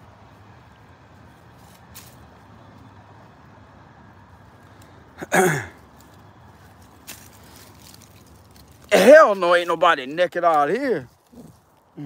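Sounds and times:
faint outdoor background: 0.0 - 12.0
man sighing: 5.2 - 5.7.

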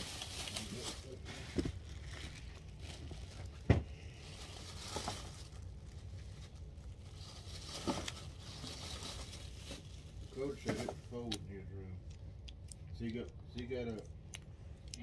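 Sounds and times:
plastic figure rustling in hands: 0.0 - 11.3.

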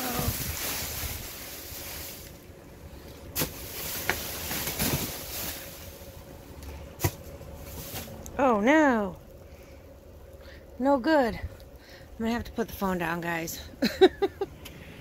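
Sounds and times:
plastic trash bags rustling: 0.0 - 8.4.

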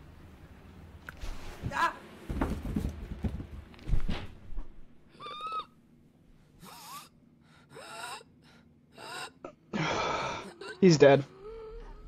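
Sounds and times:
person whimpering wheezily: 6.6 - 12.0.

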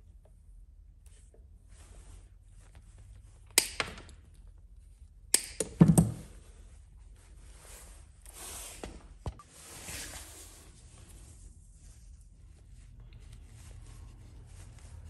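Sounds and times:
soft rustling: 1.0 - 3.4, 6.3 - 15.0.

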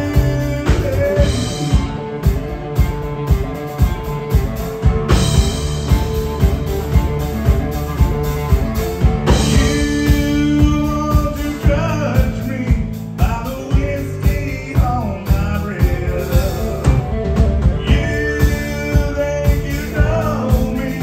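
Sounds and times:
man singing: 0.0 - 2.1, 9.3 - 21.0
live country-rock band: 0.0 - 21.0.

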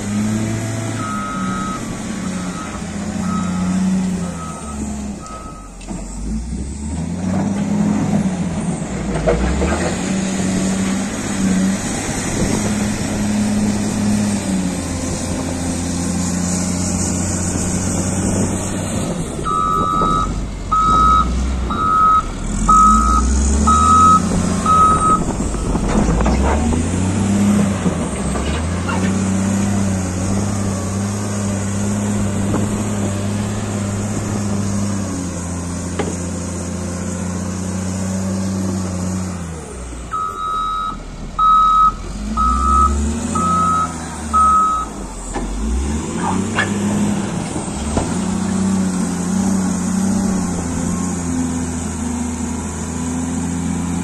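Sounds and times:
diesel engine revving: 0.0 - 54.0
reversing alarm beeping: 1.0 - 5.8, 19.5 - 25.7, 40.1 - 45.0.

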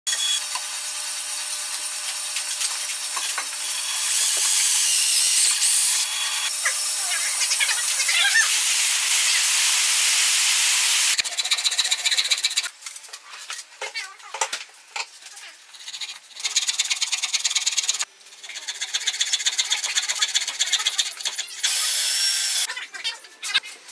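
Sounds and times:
cordless drill cutting into wood: 0.1 - 11.2, 21.6 - 22.7.

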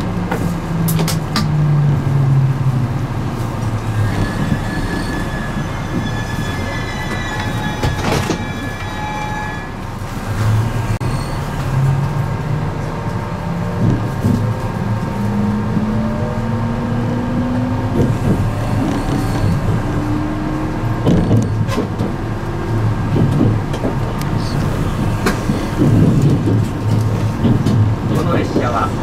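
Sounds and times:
train running noise: 0.0 - 29.0
wheels knocking on track: 23.1 - 29.0.

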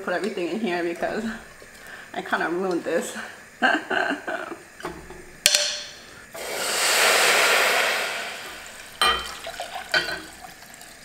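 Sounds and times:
water pouring into a saucepan: 6.4 - 11.0.

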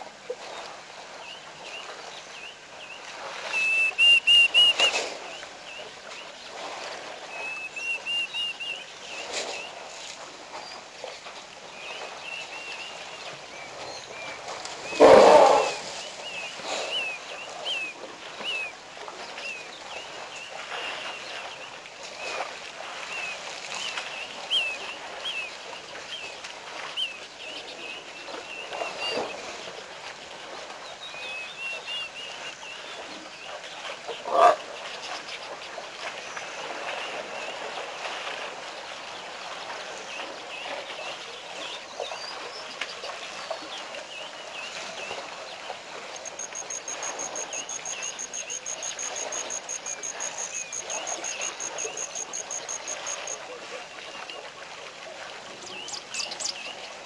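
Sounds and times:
elephant call: 14.9 - 16.0, 46.1 - 53.4
small birds chirping: 44.6 - 53.4.

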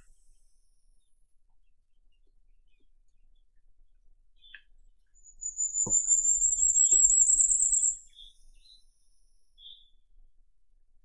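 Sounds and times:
bird song of high thin notes: 5.2 - 8.9
faint short bird chips: 5.3 - 8.3.

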